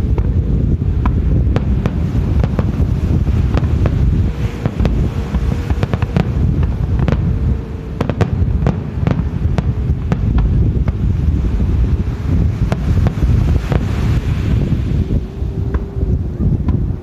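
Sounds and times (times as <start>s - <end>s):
fireworks popping and crackling: 0.0s - 14.2s
wind on microphone: 0.0s - 17.0s.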